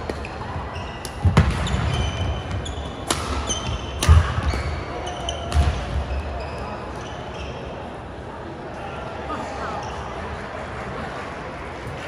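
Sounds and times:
rackets hitting shuttlecock: 0.0s - 6.0s.

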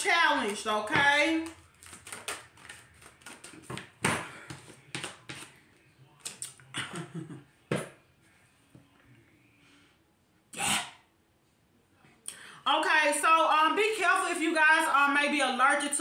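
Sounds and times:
card rustle: 1.3s - 5.6s
cards slapping and clicking: 1.4s - 5.5s.

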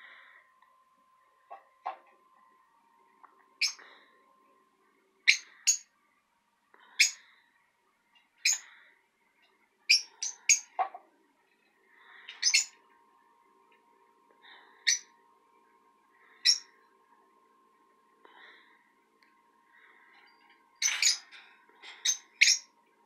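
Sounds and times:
lovebirds chirping: 3.6s - 4.1s, 5.2s - 5.9s, 8.2s - 8.8s, 9.9s - 10.8s, 12.0s - 12.8s, 14.5s - 15.1s, 16.2s - 16.7s, 19.7s - 22.8s.

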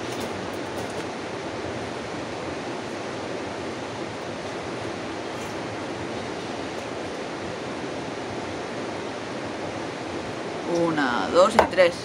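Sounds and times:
river water rushing: 0.0s - 12.0s
person's voice: 10.7s - 12.0s.

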